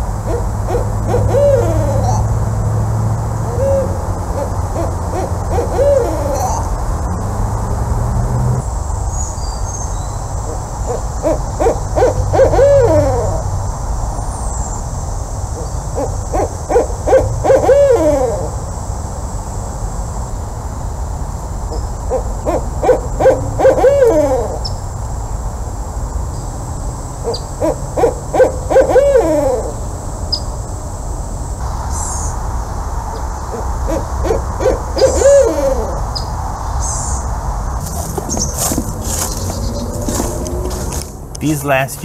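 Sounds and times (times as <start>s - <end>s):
owl hooting: 0.0s - 2.4s, 3.4s - 7.2s, 10.4s - 13.6s, 15.5s - 18.8s, 21.7s - 24.8s, 27.2s - 29.9s, 33.1s - 37.2s, 37.8s - 42.0s.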